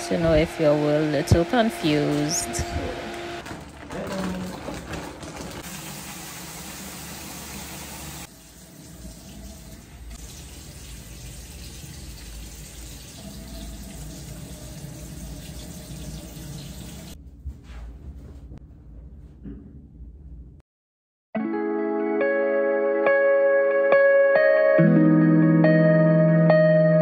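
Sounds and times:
water running from sink tap: 4.3s - 17.2s.

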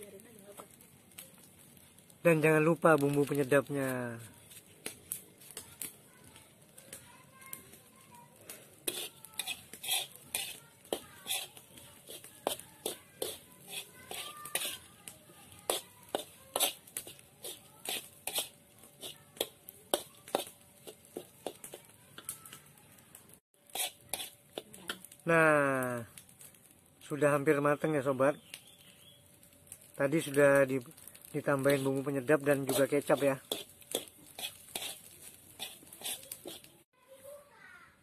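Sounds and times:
metal spatula scraping wok: 8.7s - 21.9s, 23.7s - 25.0s, 31.7s - 36.9s.

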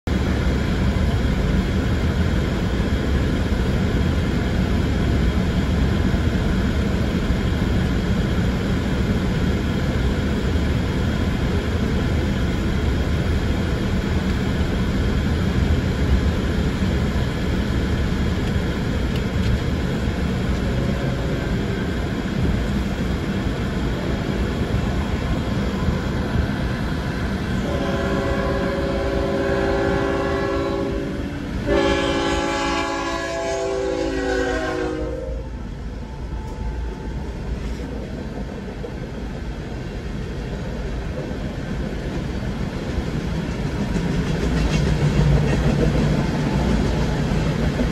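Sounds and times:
locomotive horn: 27.6s - 35.6s.

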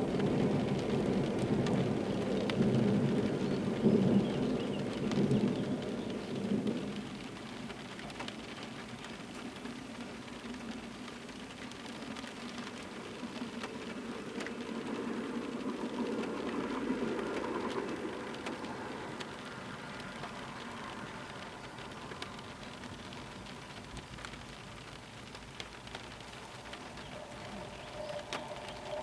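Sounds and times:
thunder rumble: 0.0s - 9.7s, 11.6s - 29.0s
rain falling: 0.0s - 29.0s.

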